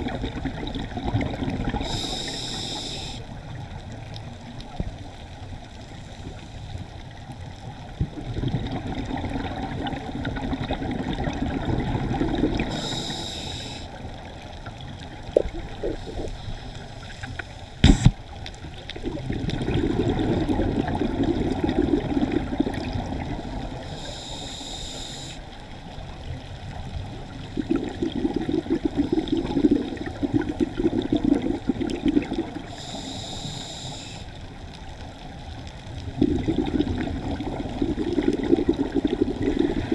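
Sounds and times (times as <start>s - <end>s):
bubbling exhalations underwater: 0.0s - 2.0s, 8.1s - 12.9s, 15.2s - 16.4s, 19.0s - 23.4s, 27.6s - 32.6s, 36.0s - 39.9s
hissing regulator inhalations: 1.8s - 3.3s, 12.6s - 14.0s, 23.9s - 25.5s, 32.6s - 34.4s.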